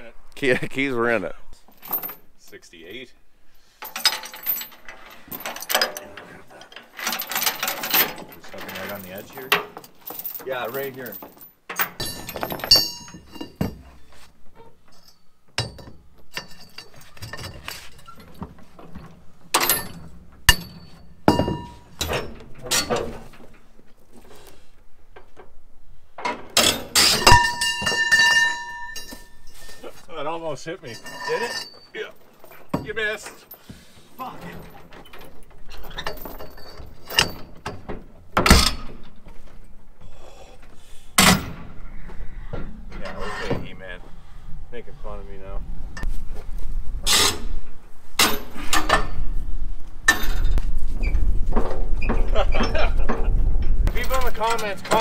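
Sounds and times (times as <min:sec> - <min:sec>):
chains rattling on wood: 0:01.7 - 0:02.9, 0:03.7 - 0:24.5, 0:26.2 - 0:39.3, 0:50.1 - 0:50.7, 0:51.3 - 0:55.0
metal clanks: 0:03.8 - 0:24.5, 0:25.1 - 0:29.8, 0:30.8 - 0:39.6, 0:41.2 - 0:41.8, 0:47.1 - 0:49.4, 0:50.0 - 0:55.0
heavy metal clank: 0:11.7 - 0:13.9, 0:15.0 - 0:23.6, 0:26.2 - 0:29.4, 0:34.4 - 0:39.2, 0:41.2 - 0:41.8.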